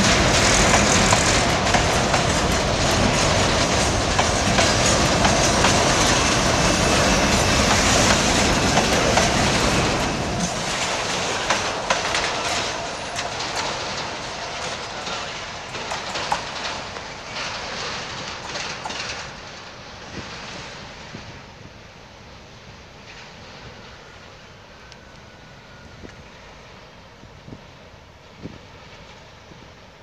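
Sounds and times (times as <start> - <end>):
wheels clicking over rail joints: 0.0 - 19.8
freight train rolling past: 0.0 - 30.0.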